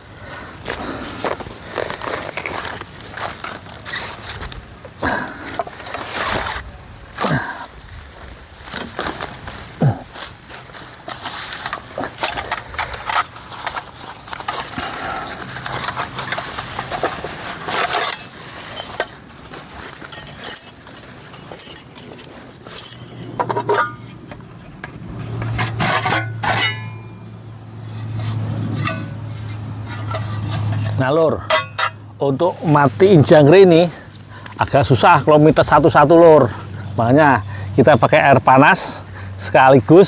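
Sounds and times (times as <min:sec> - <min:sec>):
low steady hum: 0:00.0 - 0:33.2
plastic bag rustling: 0:00.8 - 0:25.5
metal tins clinking: 0:14.4 - 0:24.2, 0:25.4 - 0:27.3, 0:28.1 - 0:32.0.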